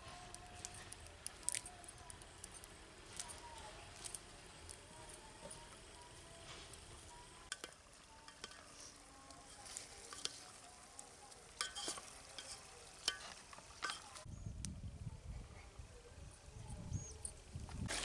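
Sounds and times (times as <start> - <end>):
metal ladle stirring in pot: 7.5 - 14.2.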